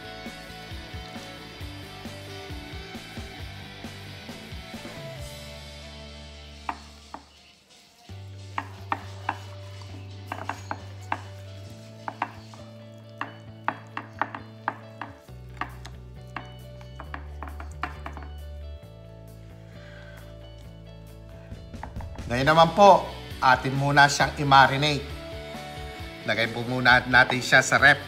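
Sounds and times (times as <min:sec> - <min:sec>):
soft background music: 0:00.0 - 0:28.0
fingers knocking on glass dish: 0:10.3 - 0:11.4, 0:12.0 - 0:12.6, 0:13.2 - 0:18.4.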